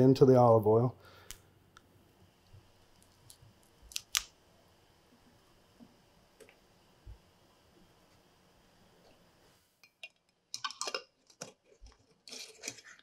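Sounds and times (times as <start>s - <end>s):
dried plant crackling: 2.8s - 4.3s.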